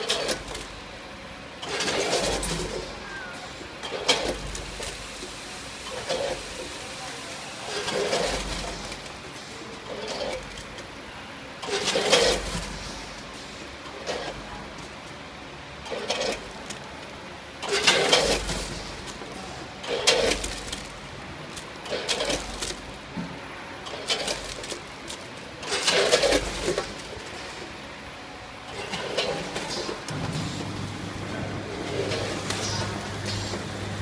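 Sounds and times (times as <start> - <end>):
candies and hopper gates rattling: 0.0 - 0.8, 1.6 - 10.9, 11.6 - 15.0, 15.8 - 23.2, 23.8 - 27.8, 28.6 - 34.0
machine hum: 17.6 - 34.0.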